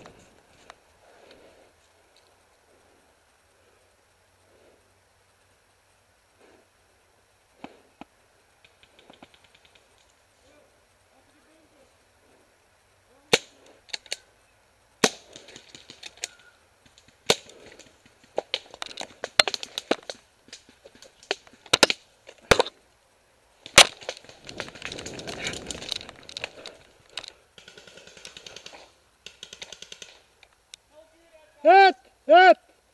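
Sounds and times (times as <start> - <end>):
rustling through grass: 19.6 - 27.5.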